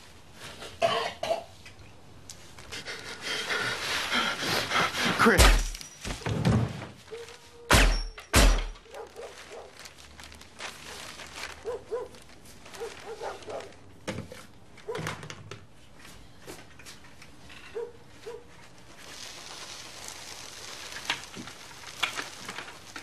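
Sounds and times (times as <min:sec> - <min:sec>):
loud heavy thunks: 0:05.4 - 0:06.9.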